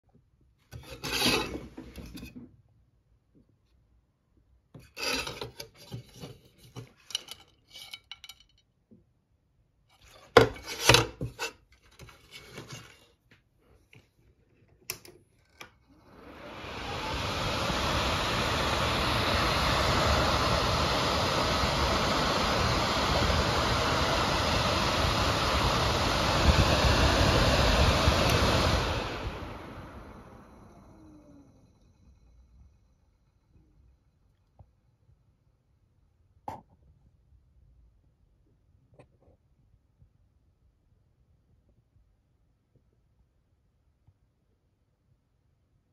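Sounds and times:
fan impeller rubbing and clicking: 0.7 - 2.3, 4.8 - 8.3
fan rush of moving air: 15.9 - 32.9.

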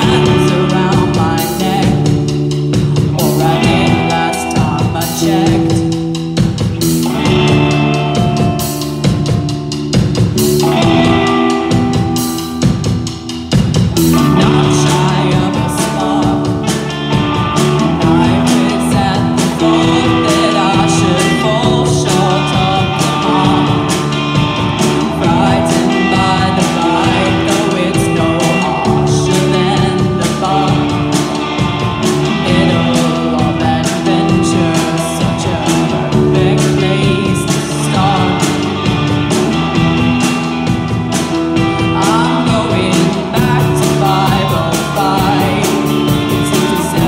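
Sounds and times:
girl singing: 0.0 - 6.2, 13.9 - 39.1, 41.6 - 47.0
bass guitar: 0.0 - 47.0
drum kit: 0.0 - 47.0
electric guitar: 0.0 - 47.0.

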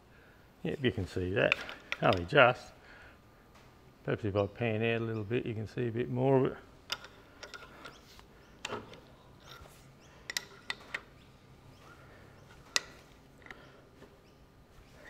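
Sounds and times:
spanner clicking on metal: 6.9 - 9.7, 10.3 - 11.1, 12.7 - 13.6.

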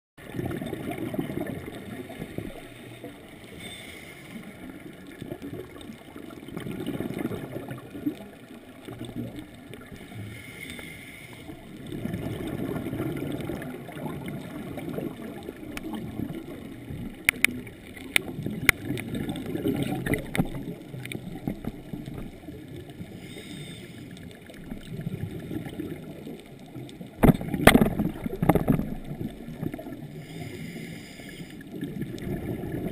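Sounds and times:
bubbles rumbling underwater: 0.2 - 3.6, 4.4 - 10.2, 11.5 - 23.3, 24.1 - 30.4, 31.6 - 32.9
scuba regulator breathing: 2.3 - 4.8, 9.9 - 11.7, 23.0 - 24.4, 30.1 - 31.8
sharp clicks: 17.2 - 19.0.

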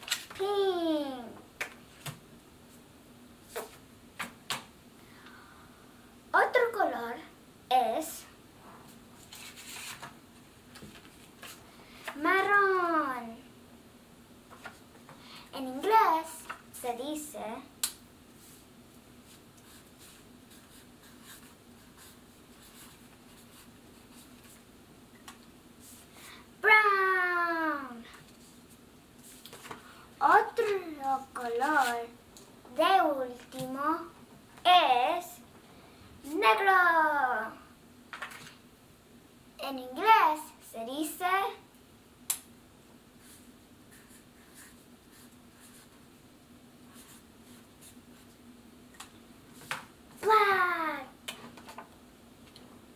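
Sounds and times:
marker scratching on paper: 19.6 - 24.6, 43.2 - 46.0.

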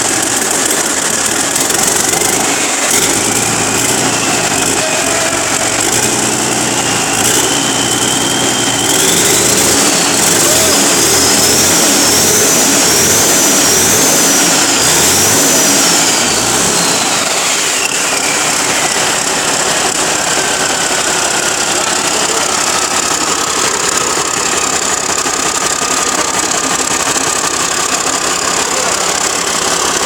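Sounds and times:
diesel engine running: 0.0 - 30.0
high turbo whine: 0.0 - 30.0.

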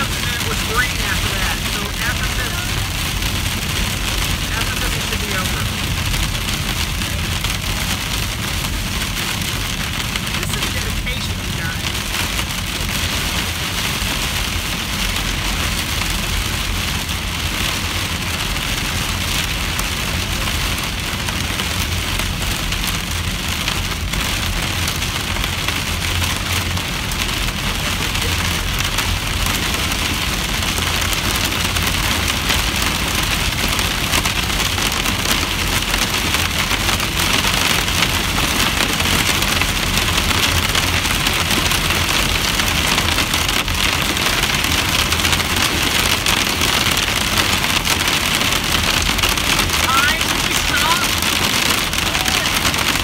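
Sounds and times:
car rumbling on road: 0.0 - 53.0
rain pelting car roof: 0.0 - 53.0.

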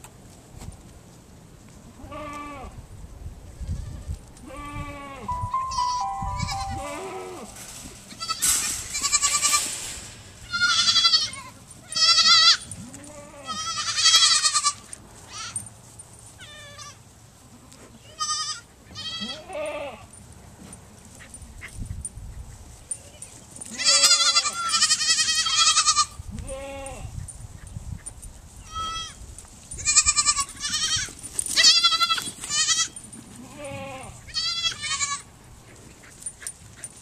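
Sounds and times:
goat kids bleating: 2.0 - 2.8, 3.5 - 15.6, 16.4 - 20.1, 23.0 - 27.2, 28.6 - 35.4.

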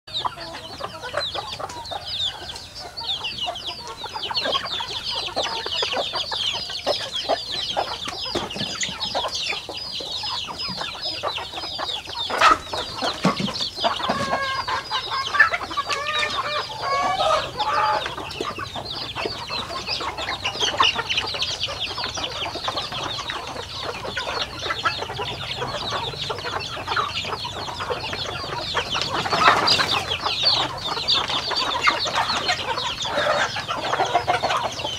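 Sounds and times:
chickens clucking: 0.1 - 34.9
chicks peeping: 0.1 - 34.9.

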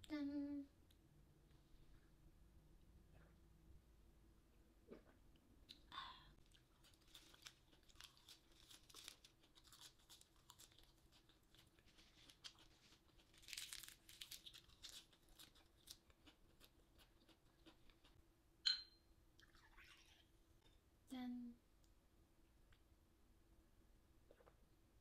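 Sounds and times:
lettuce leaves tearing: 13.2 - 16.0.

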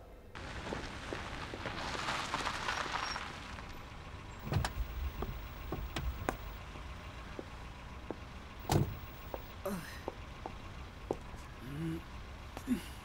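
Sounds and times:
car door thud: 4.4 - 6.5, 8.6 - 9.4.

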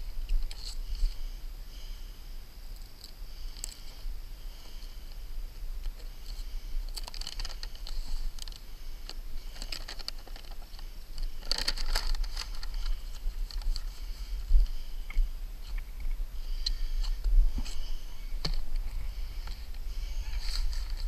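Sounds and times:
paper liner crinkling and rustling: 6.9 - 8.6, 9.5 - 14.1.

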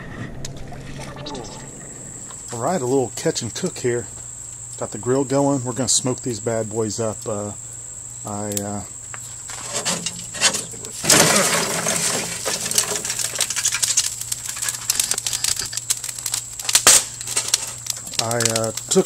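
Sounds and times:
hot coals crackling and clinking: 8.3 - 19.0
coals tumbling onto grate: 8.5 - 19.0.

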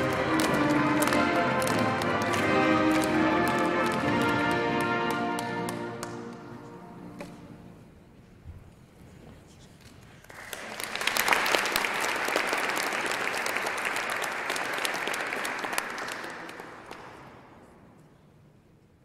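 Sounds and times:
audience applauding: 0.0 - 6.3, 10.2 - 17.7.

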